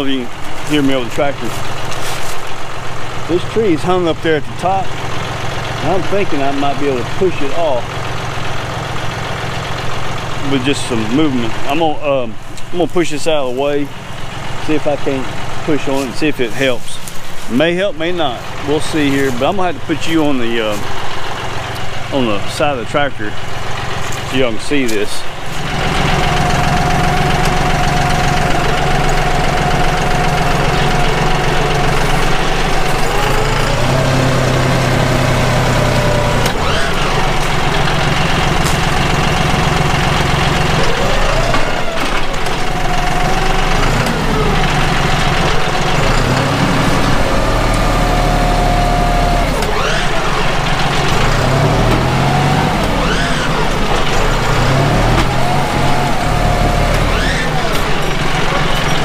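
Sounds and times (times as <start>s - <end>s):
tractor diesel engine revving: 0.0s - 59.0s.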